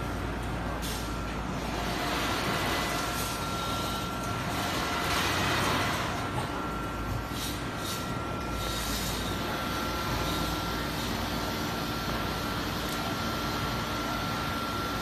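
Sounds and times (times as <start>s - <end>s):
machine hum with thin whine: 0.0s - 15.0s.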